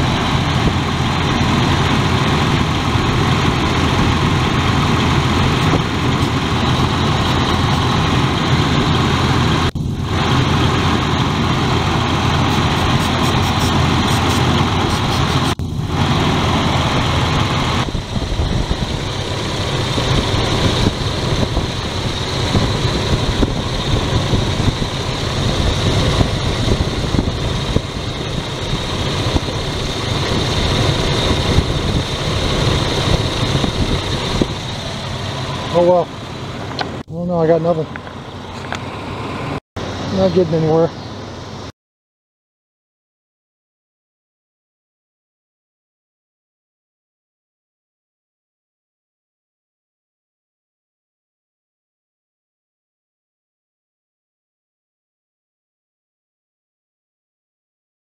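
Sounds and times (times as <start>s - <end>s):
car engine idling: 0.0s - 41.7s.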